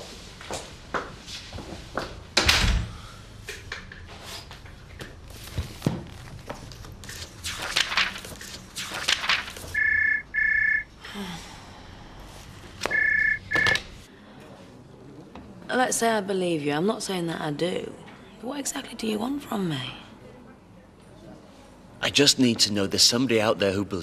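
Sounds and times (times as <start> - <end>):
telephone ringing: 9.8 - 10.9, 12.9 - 13.8.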